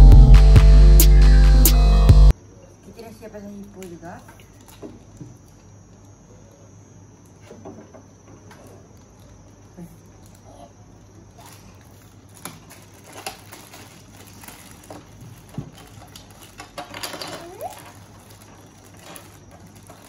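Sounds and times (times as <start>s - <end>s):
plastic wrappers rustling: 8.4s - 20.0s
plastic toy blocks clicking: 12.4s - 20.0s.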